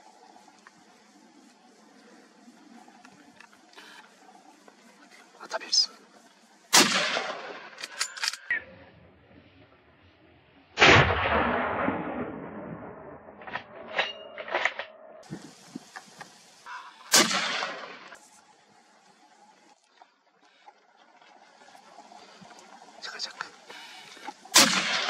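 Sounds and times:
rifle shots with rolling echo: 6.7 - 8.5, 10.8 - 14.2, 17.0 - 18.2, 24.5 - 25.0.

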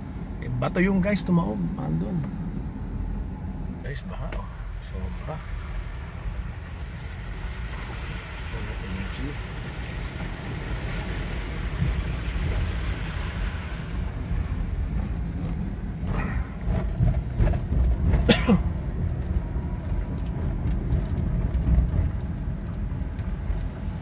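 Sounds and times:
engine and road rumble: 0.0 - 24.0
tyres hissing on wet road: 4.5 - 15.1.

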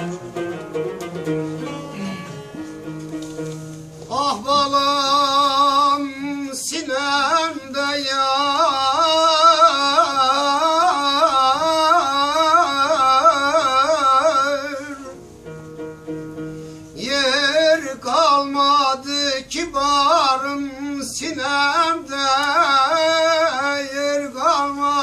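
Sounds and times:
man singing folk song: 4.0 - 15.2, 16.9 - 25.0.

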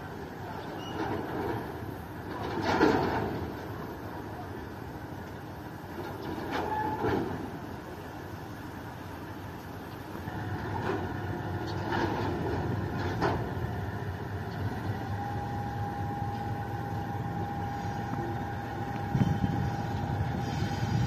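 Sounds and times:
locomotive engine rumble: 0.0 - 21.0
thin steady squeal: 14.9 - 21.0.

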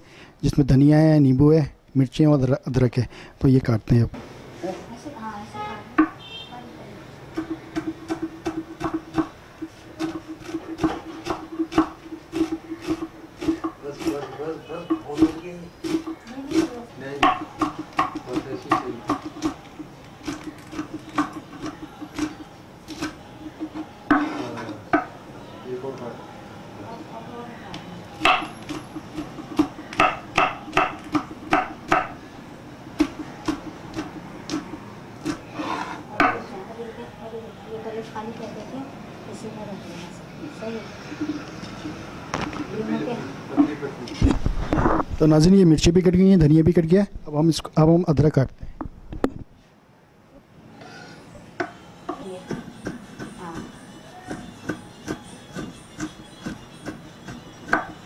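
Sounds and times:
knife chopping on wooden board: 7.3 - 14.3, 14.9 - 25.1, 28.2 - 32.2, 32.9 - 36.4, 51.6 - 58.0.

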